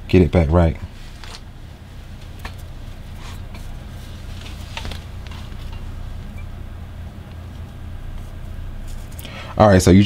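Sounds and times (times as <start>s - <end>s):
steady low hum: 0.0s - 10.0s
fabric rustling: 1.0s - 6.4s.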